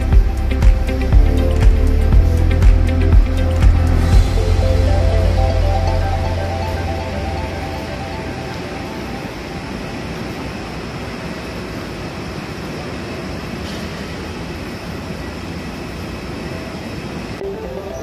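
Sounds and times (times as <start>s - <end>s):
rushing terminal background noise: 0.0s - 18.0s.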